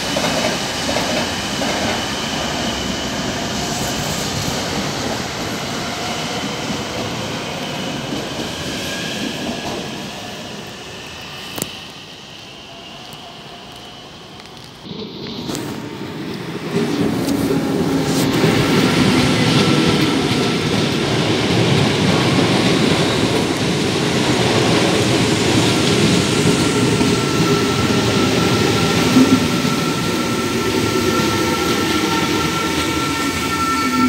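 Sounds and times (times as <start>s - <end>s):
train wheels rumbling on rail: 0.0s - 34.0s
steady high tone: 26.5s - 34.0s.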